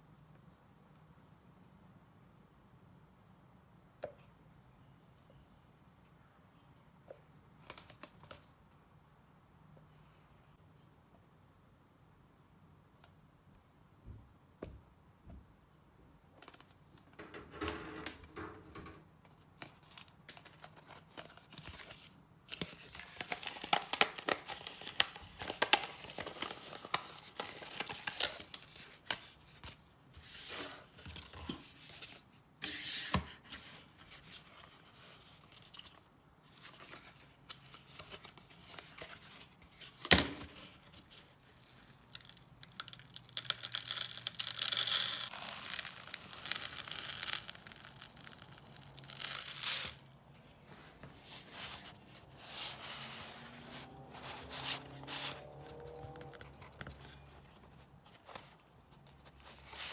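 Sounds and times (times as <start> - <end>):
plastic cups crinkling and clicking: 41.0 - 50.1
feed poured into plastic cup: 42.2 - 50.0.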